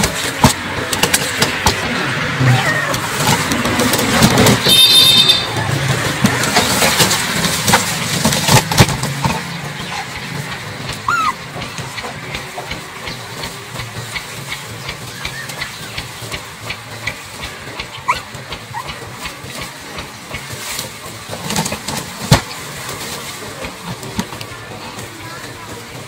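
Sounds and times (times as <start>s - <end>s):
puppy squeaks: 11.1s - 11.4s, 18.0s - 18.8s.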